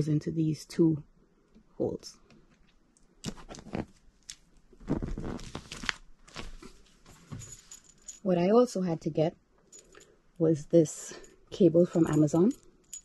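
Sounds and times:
cable bundle rustling: 2.5 - 8.2.

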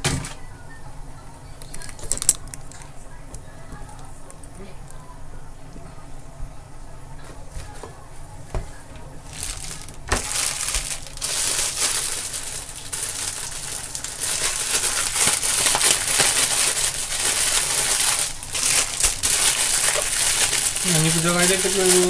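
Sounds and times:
plastic bag crinkling: 1.6 - 2.9, 9.2 - 22.0.

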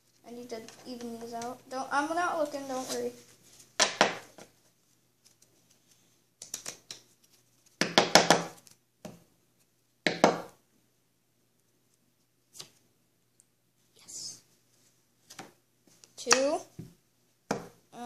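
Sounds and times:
playing cards clicking on table: 6.4 - 7.1.

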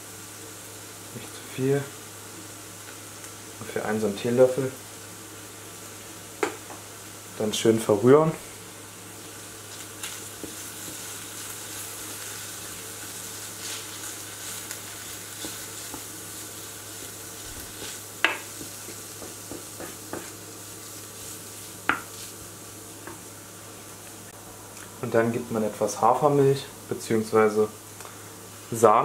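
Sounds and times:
vegetables sizzling in oil: 0.0 - 29.0
spoon knocking against pan: 18.2 - 20.3.

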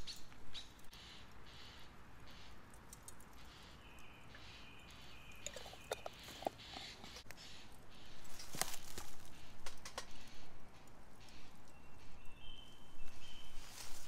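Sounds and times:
songbird calling: 0.0 - 2.7, 3.3 - 14.0
charcoal crackling and popping: 8.2 - 11.8.

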